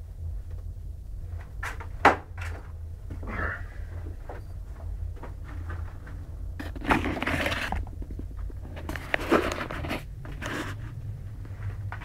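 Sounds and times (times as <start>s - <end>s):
crunching and scraping: 4.2s - 12.0s.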